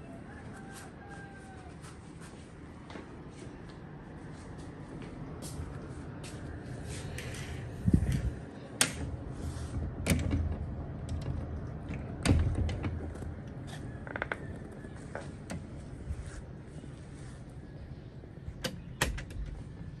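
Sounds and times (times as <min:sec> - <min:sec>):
glass sliding door clicks and thumps: 0:08.8 - 0:13.3
sliding door rattle: 0:08.9 - 0:13.7.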